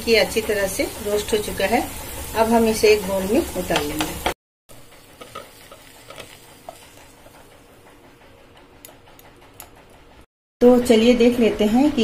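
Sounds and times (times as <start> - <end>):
spatula scraping pan: 0.3 - 8.1.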